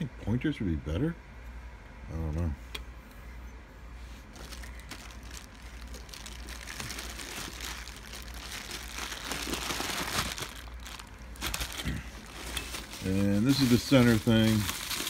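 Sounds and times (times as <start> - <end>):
plastic and bubble wrap crinkling: 4.2 - 15.0.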